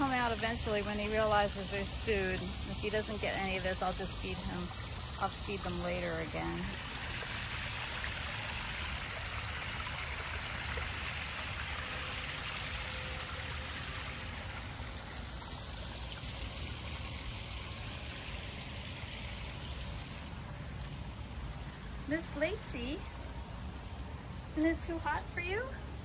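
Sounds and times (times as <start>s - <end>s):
waterfall splashing over rocks: 0.0s - 20.2s.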